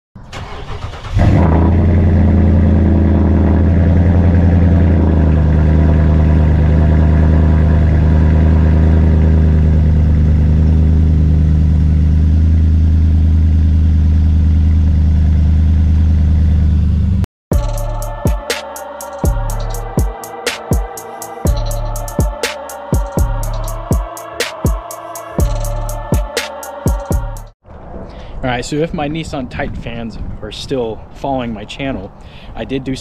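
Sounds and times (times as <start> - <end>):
car engine starting and idling: 0.2 - 18.4.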